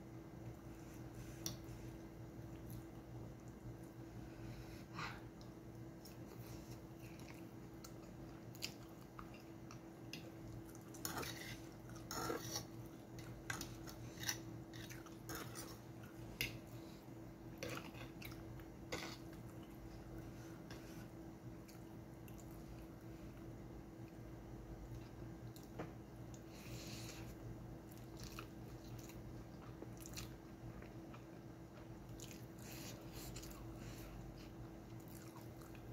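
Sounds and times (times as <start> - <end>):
faint steady hum: 0.0 - 35.9
slurping and chewing: 5.1 - 17.0, 26.6 - 35.9.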